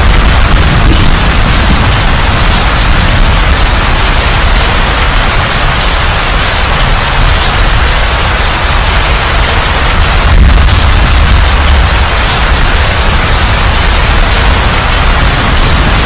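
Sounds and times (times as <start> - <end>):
low thunder rumble: 0.0 - 6.3, 9.8 - 16.0
heavy rain: 0.0 - 16.0.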